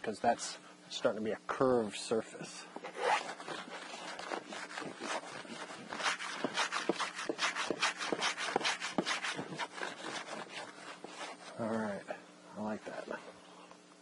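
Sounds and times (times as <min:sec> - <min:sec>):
block plane shaving wood: 0:03.0 - 0:11.6.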